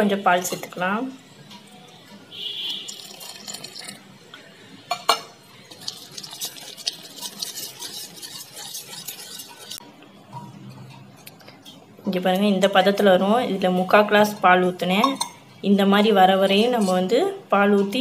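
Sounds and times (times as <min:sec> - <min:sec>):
whisk beating in metal bowl: 0:05.6 - 0:09.8.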